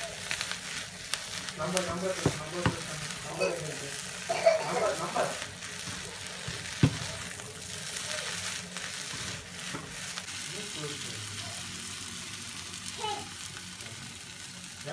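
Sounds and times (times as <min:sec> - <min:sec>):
food sizzling in a frying pan: 0:00.0 - 0:14.9
wooden spatula stirring: 0:01.6 - 0:10.5.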